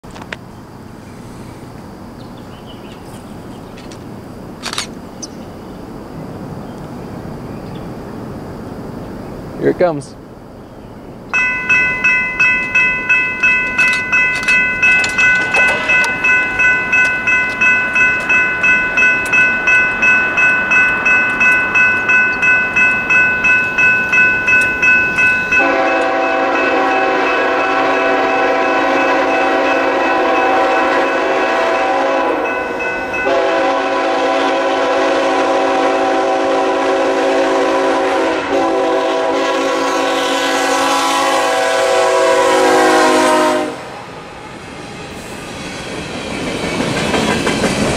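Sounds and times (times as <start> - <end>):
crossing bells ringing: 11.3 - 34.6
locomotive horn blasts: 25.3 - 44.1.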